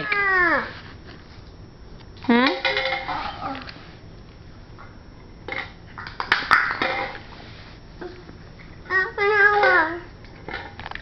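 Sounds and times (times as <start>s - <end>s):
young child's sing-song voice: 8.8s - 10.1s.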